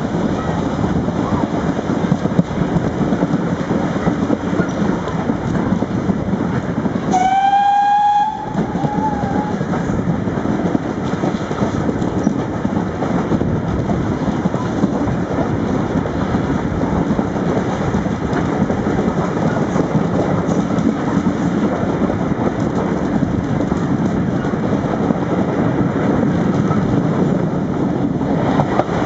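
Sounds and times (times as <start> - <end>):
train wheels on rails: 0.0 - 29.0
steam locomotive whistle: 7.1 - 9.7.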